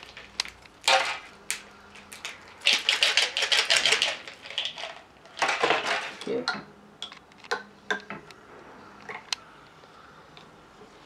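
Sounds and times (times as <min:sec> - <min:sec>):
plastic packaging crinkling: 0:00.0 - 0:06.2.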